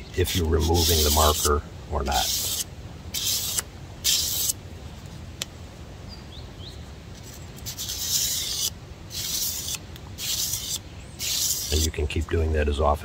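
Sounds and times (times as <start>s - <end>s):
knife scraping on sandpaper: 0.2s - 4.6s, 7.2s - 12.0s.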